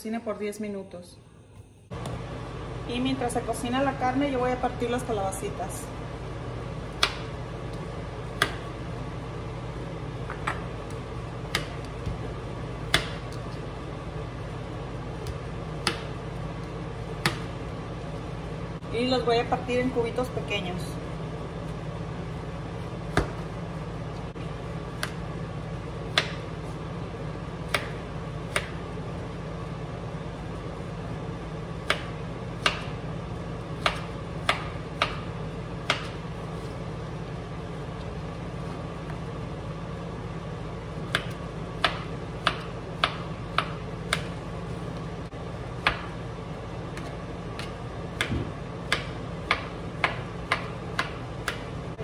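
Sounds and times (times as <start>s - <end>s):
steady low hum: 0.0s - 52.0s
knife chopping on plastic board: 6.9s - 7.3s, 8.3s - 8.7s, 10.3s - 12.2s, 12.9s - 13.4s, 15.2s - 16.1s, 17.2s - 17.5s, 23.1s - 23.4s, 26.1s - 26.4s, 27.6s - 28.8s, 31.8s - 32.9s, 35.8s - 36.2s, 41.1s - 44.4s, 47.0s - 51.7s.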